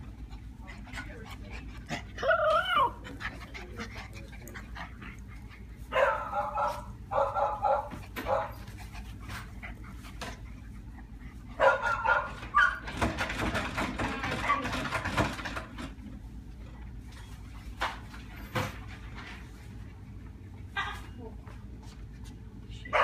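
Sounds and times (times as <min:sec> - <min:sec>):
puppies wrestling: 0:00.0 - 0:16.3
puppies yipping and barking: 0:11.6 - 0:13.1.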